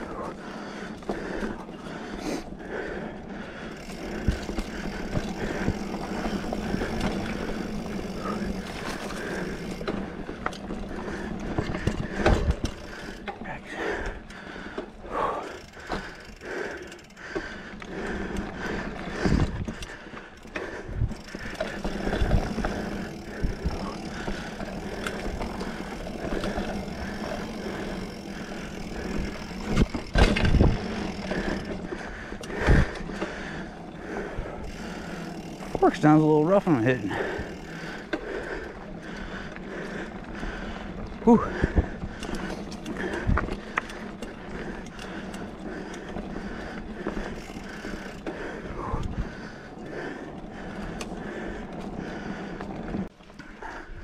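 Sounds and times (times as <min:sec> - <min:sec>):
mountain bike rolling rattle: 0:00.0 - 0:54.0
bike thumping over bumps: 0:21.2 - 0:31.7.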